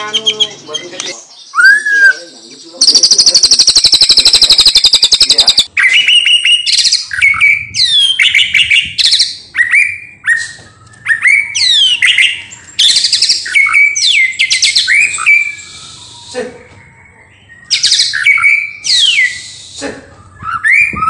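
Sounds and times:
bird whistled phrases: 0.0s - 21.0s
bird rattling trill: 2.8s - 5.7s.

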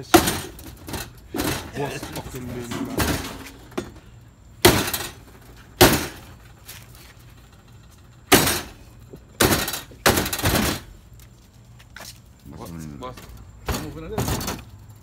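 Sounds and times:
machete chopping on wooden block: 5.8s - 6.2s.

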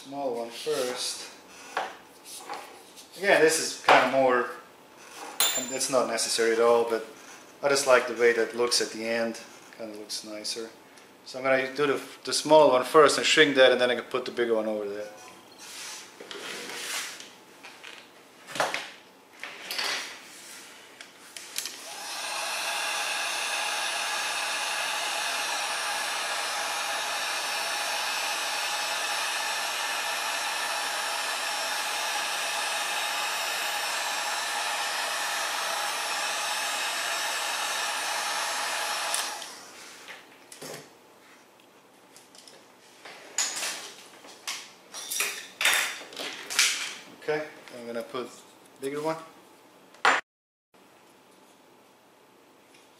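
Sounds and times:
heat gun fan whine: 5.4s - 8.8s, 21.4s - 39.8s.

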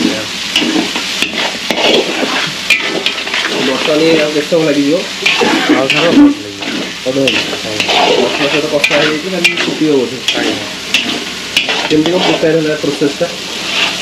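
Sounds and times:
food sizzling in hot oil: 0.0s - 14.0s
metal ladle scraping a pan: 0.0s - 14.0s.

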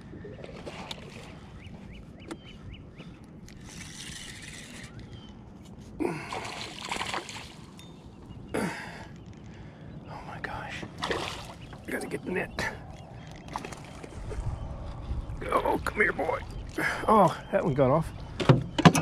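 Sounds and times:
fish splashing and thrashing: 0.2s - 1.5s, 6.1s - 7.8s, 10.9s - 15.4s.

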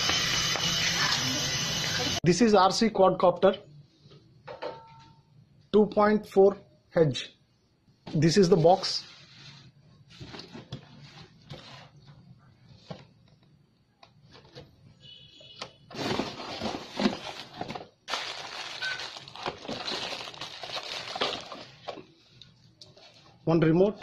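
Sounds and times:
cardboard box scraping and rustling: 15.9s - 17.8s.

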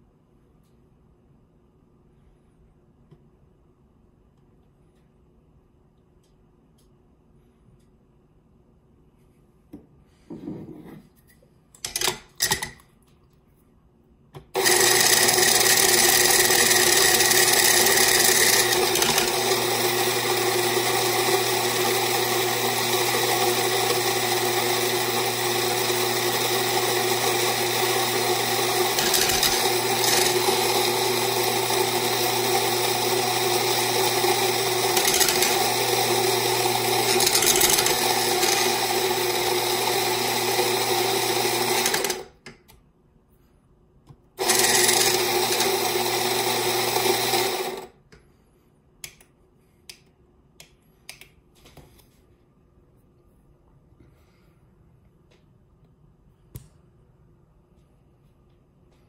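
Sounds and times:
coffee grinder motor running: 14.6s - 42.3s, 44.4s - 47.9s.

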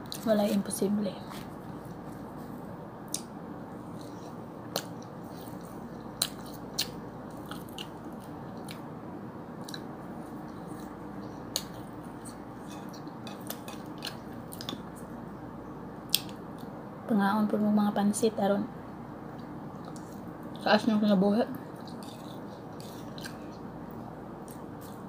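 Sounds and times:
person chewing: 1.3s - 8.8s, 9.6s - 15.0s, 21.8s - 25.0s.

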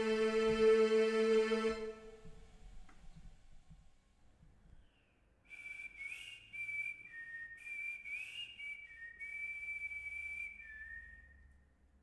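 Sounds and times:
person whistling a slow melody: 5.5s - 11.6s.

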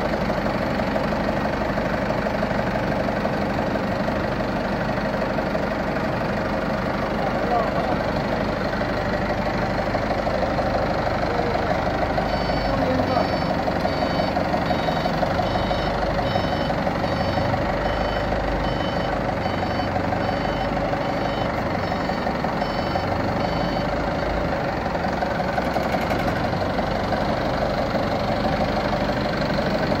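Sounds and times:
forklift engine running: 0.0s - 30.0s
short high beeps: 12.3s - 23.9s.

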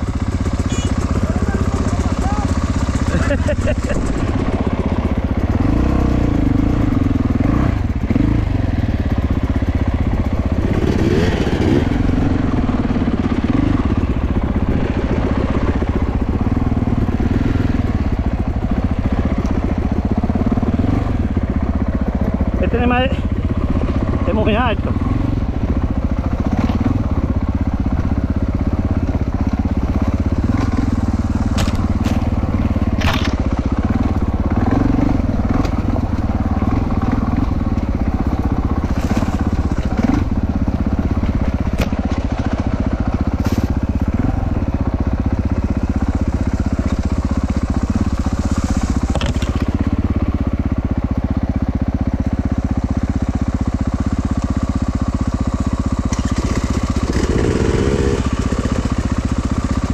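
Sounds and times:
motorcycle engine running: 0.0s - 59.9s
knocks and clatters from wheels: 28.8s - 45.0s, 45.7s - 50.2s.

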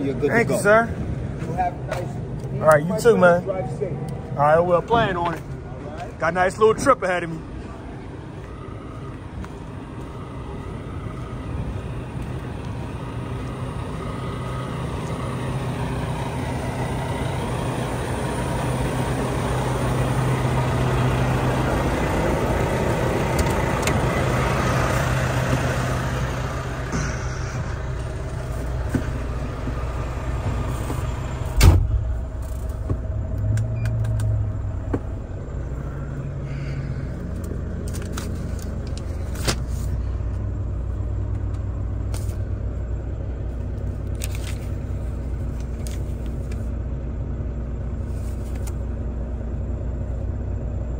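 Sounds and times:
diesel truck engines idling: 0.0s - 50.9s
truck cab door shutting: 30.8s - 35.1s.

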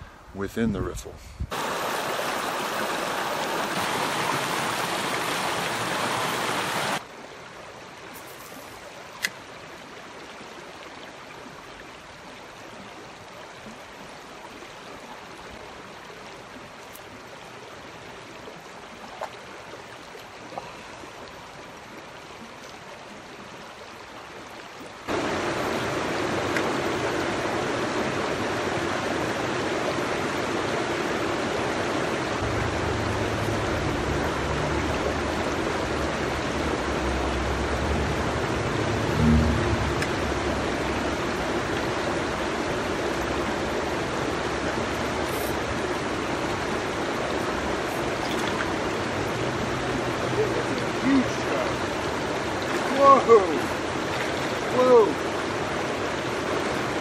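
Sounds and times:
river rushing over rocks: 1.5s - 7.9s, 25.0s - 57.0s.

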